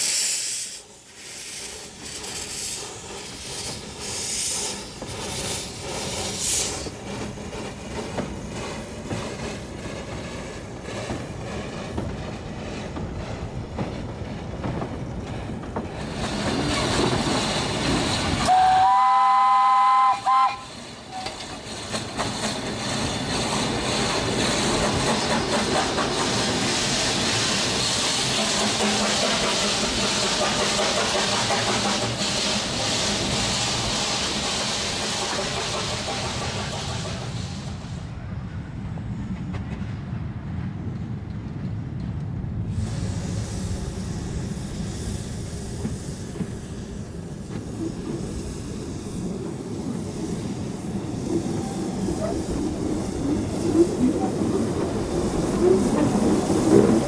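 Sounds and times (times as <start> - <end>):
steam hiss: 0.0 - 13.8, 15.9 - 38.2, 42.6 - 57.0
locomotive exhaust and rail noise: 0.0 - 57.0
steam whistle: 18.5 - 21.4.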